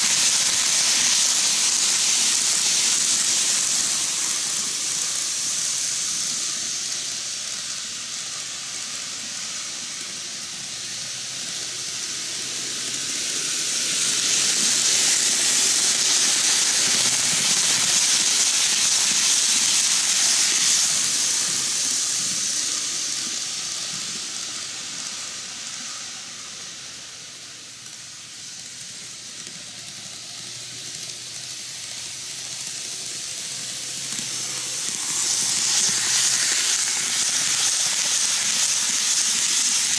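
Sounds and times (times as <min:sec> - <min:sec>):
model trains hissing on rails: 0:00.0 - 0:39.9.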